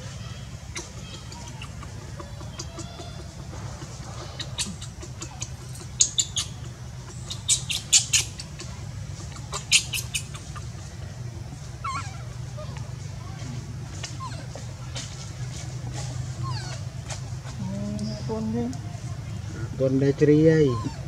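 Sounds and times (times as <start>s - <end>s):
baby monkey squeaking: 0.0s - 10.9s, 11.8s - 12.9s, 13.9s - 17.3s, 20.6s - 21.0s.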